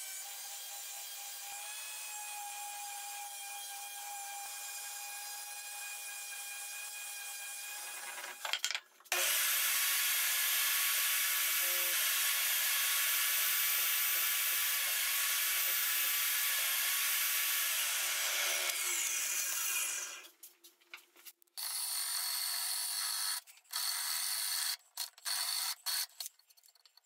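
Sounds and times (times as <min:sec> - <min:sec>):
orbital sander on wood: 0:09.1 - 0:20.2
table saw whining: 0:09.1 - 0:20.3.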